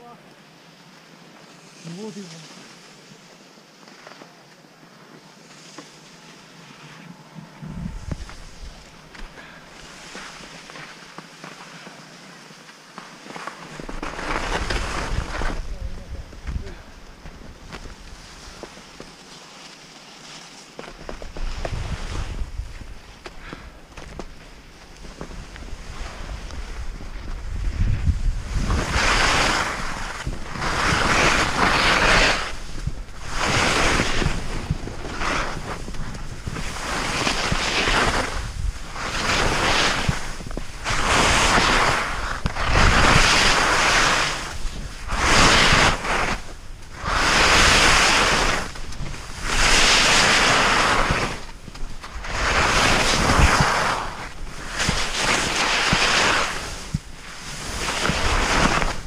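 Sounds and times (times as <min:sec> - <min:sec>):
ski edges scraping on snow: 0:01.4 - 0:59.0
wind buffeting microphone: 0:07.5 - 0:09.4, 0:13.8 - 0:18.7, 0:21.0 - 0:59.0.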